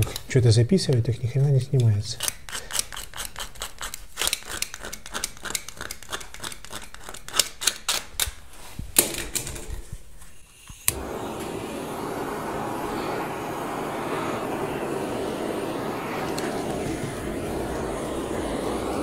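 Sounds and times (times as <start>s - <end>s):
gas burner hissing: 0.0s - 0.4s, 10.8s - 19.0s.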